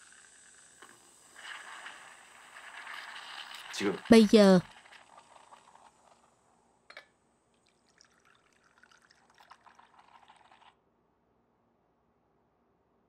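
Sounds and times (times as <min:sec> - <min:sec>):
coffee trickling into a cup: 0:00.0 - 0:04.1, 0:04.7 - 0:06.5, 0:07.6 - 0:10.8.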